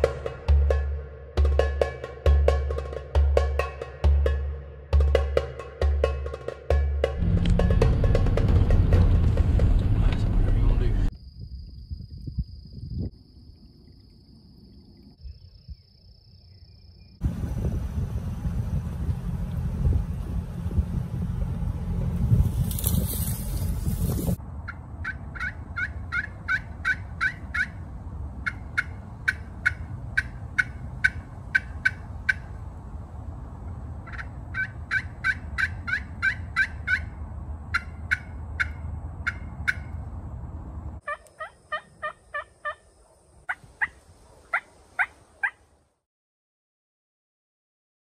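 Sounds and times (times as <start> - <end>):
wind rumble: 7.0 - 45.7
turkey yelping: 24.7 - 27.8, 28.4 - 32.5, 34.0 - 39.9, 41.0 - 42.8, 43.5 - 45.6.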